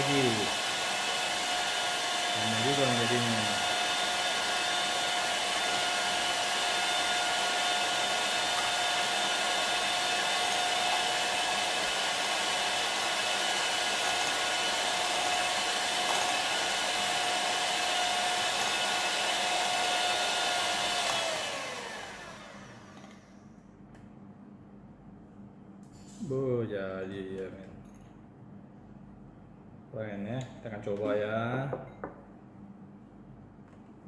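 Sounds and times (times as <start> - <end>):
electric mixer whining: 0.0 - 23.4.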